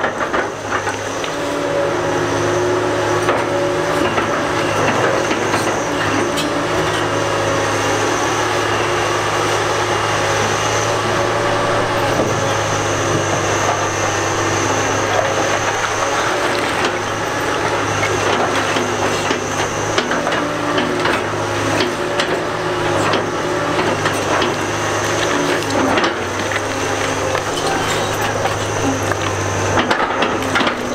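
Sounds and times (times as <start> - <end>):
excavator diesel drone: 0.0 - 30.9
thin high whine: 8.0 - 17.9.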